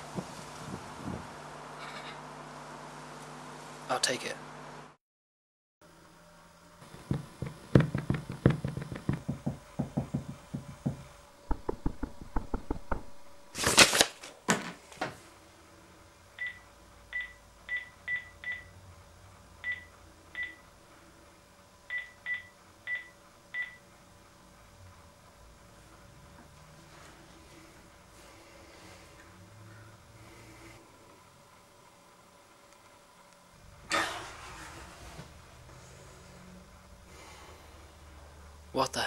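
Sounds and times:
clicks and knocks: 6.8s - 13.3s.

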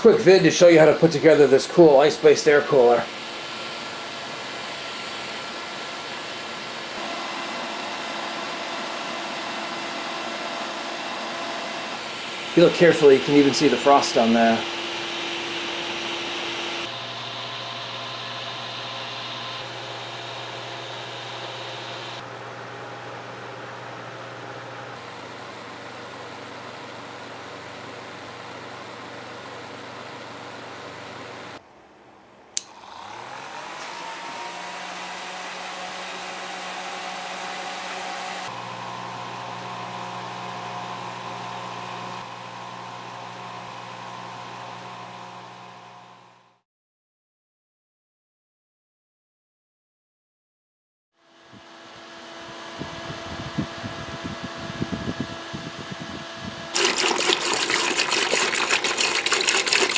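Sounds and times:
electric fan whirring: 0.0s - 31.6s, 32.6s - 46.6s, 51.2s - 59.9s
low motor hum: 32.7s - 46.6s, 51.4s - 59.9s.

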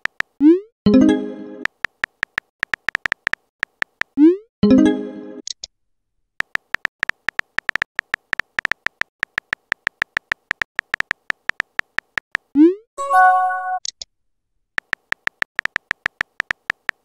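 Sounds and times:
phone keyboard tap clicks: 1.8s - 4.1s, 6.4s - 12.2s, 14.8s - 17.0s
message tone: 13.0s - 13.8s.

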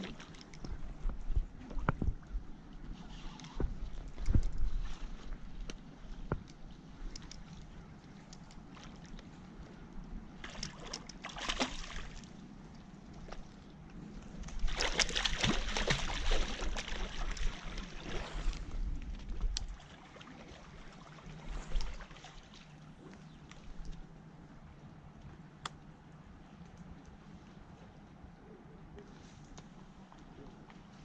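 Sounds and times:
fish splashing in water: 10.4s - 12.2s, 14.6s - 18.5s.

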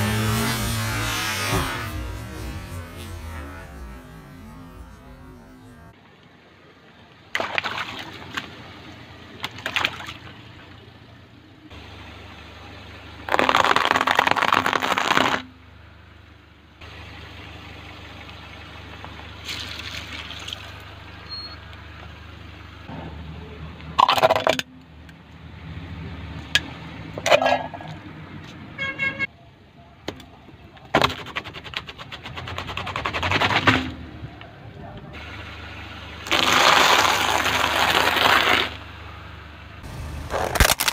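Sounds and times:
car engine running low: 0.0s - 6.0s, 33.9s - 40.9s
objects popping and crunching: 13.3s - 15.4s, 36.3s - 38.8s, 39.9s - 40.9s
water balloons bursting: 13.3s - 15.5s, 36.2s - 38.8s, 39.8s - 40.9s.

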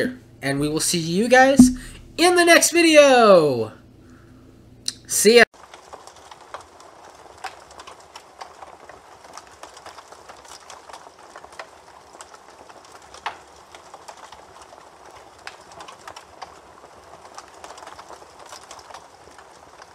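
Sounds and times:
fire crackling: 5.6s - 19.9s.

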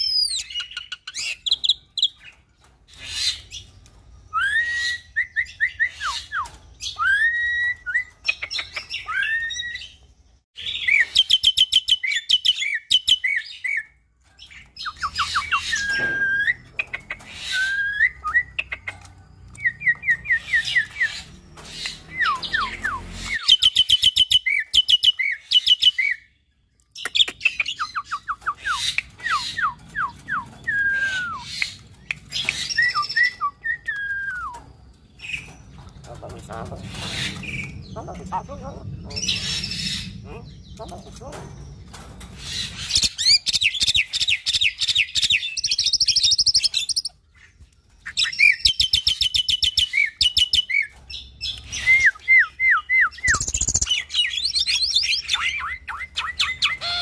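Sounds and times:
myna bird singing: 0.0s - 57.0s.

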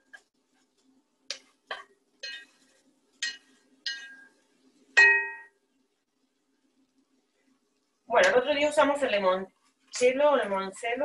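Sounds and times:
metal spoon clinking on cookware: 2.2s - 2.6s, 3.2s - 4.4s.

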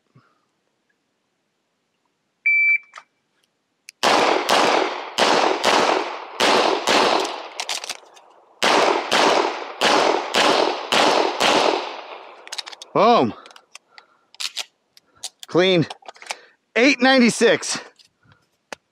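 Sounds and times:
shot timer beep: 2.5s - 3.0s
pistol shots: 4.0s - 7.6s, 8.6s - 12.4s.

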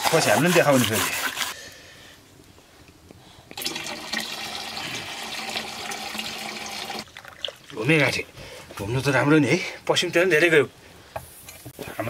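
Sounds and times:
liquid pouring into metal vessel: 3.6s - 7.9s.

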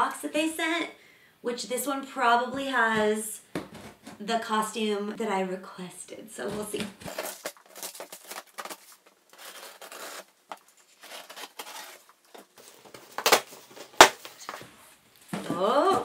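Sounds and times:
cardboard box being opened: 7.0s - 14.6s.

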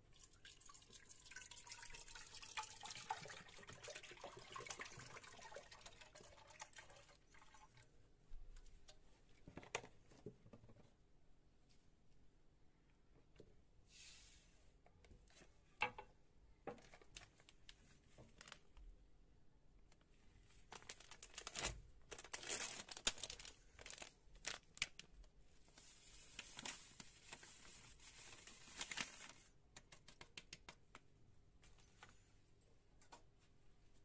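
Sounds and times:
plastic packet crinkling and tearing: 16.8s - 18.8s, 20.7s - 30.3s.

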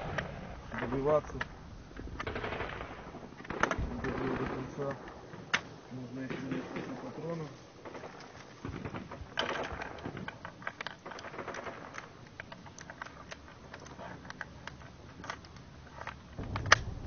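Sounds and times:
cartridges clicking in plastic loader: 7.8s - 17.0s.

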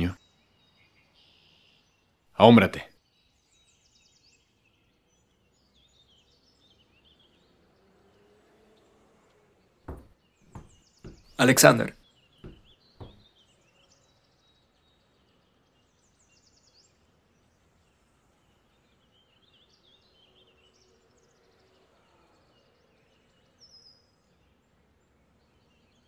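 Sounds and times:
faint bird chirps: 0.0s - 7.5s.

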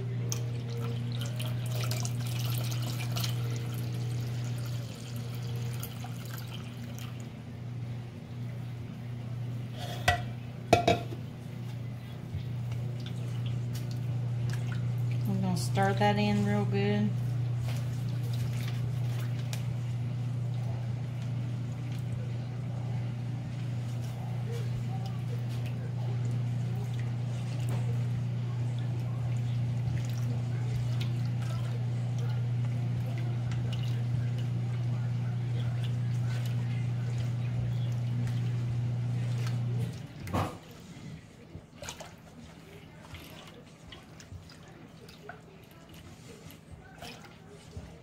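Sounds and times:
steady low hum: 0.0s - 48.0s
water pouring into metal bowl: 0.4s - 7.2s
spoon scraping metal bowl: 9.7s - 11.1s.

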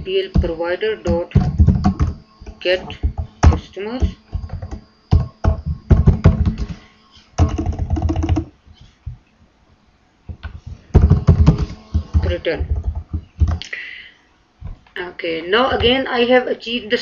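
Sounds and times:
typing on computer keyboard: 7.4s - 8.5s.

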